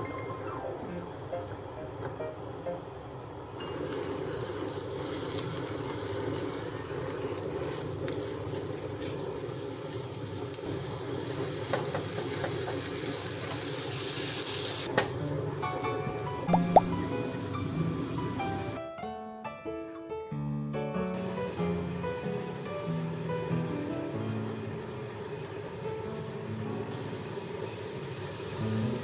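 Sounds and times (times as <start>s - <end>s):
potatoes sizzling in a frying pan: 3.6s - 16.2s, 17.0s - 18.8s, 26.9s - 29.0s.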